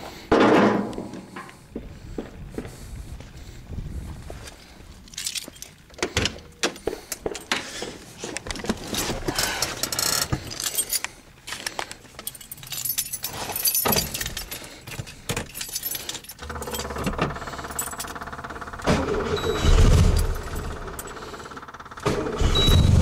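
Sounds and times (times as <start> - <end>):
keys jangling and clicking: 5.0 - 7.6, 8.7 - 18.4, 20.0 - 21.3
starter cranking engine: 16.4 - 23.0.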